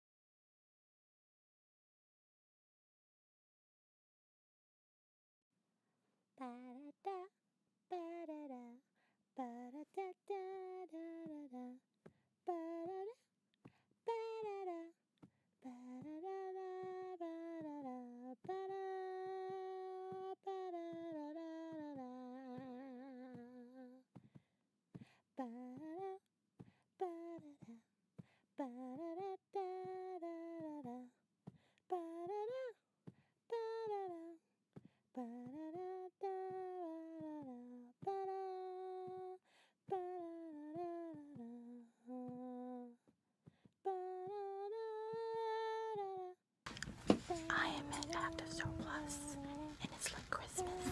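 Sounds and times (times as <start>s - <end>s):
person humming a tune: 35.2s - 43.0s, 43.8s - 46.4s, 47.1s - 50.9s.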